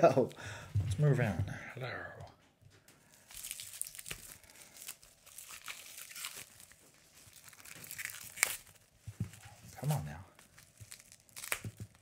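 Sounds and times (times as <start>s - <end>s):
plastic shrink wrap crinkling: 3.0s - 12.0s.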